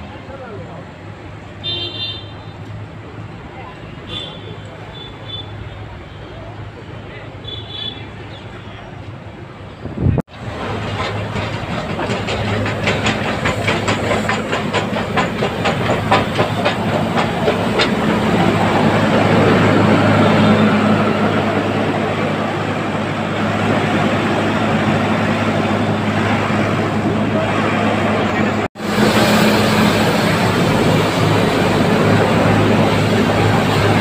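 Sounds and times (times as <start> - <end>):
rushing noise: 9.8 - 34.0
steam locomotive chuffing: 10.3 - 34.0
hiss of steam: 28.8 - 34.0.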